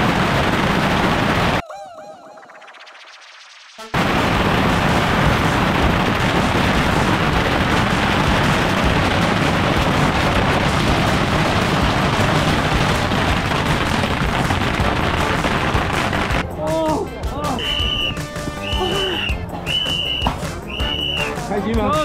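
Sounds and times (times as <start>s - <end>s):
bottle rockets popping and hissing: 3.9s - 16.4s.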